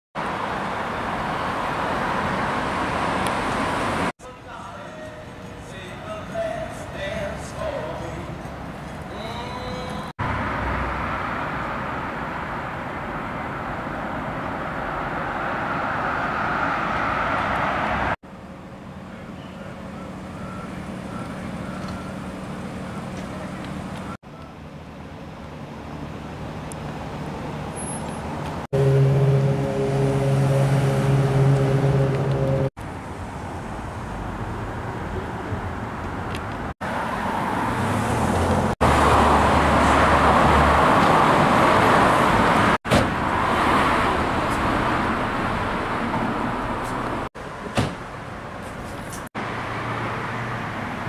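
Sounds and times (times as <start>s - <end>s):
vehicles passing: 0.2s - 51.0s
engine humming: 2.6s - 36.7s
large vehicle passing close: 27.4s - 32.7s.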